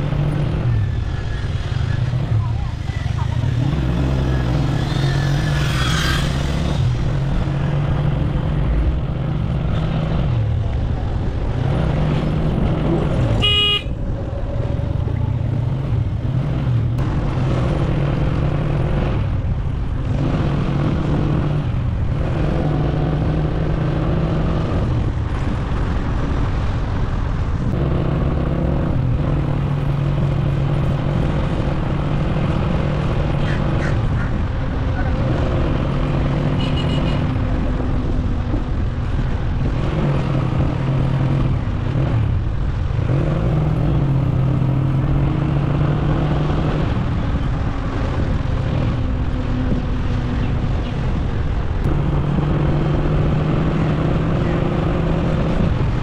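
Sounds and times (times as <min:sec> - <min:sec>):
road and wind noise: 0:00.0 - 0:56.0
vehicle horn toot: 0:13.4 - 0:14.0, 0:36.6 - 0:37.3.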